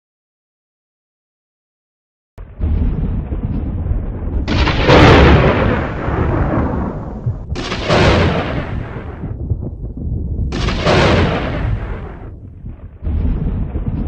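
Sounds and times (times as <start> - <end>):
loud thunder cracks: 2.4 - 14.0
low thunder rumble: 2.4 - 14.0.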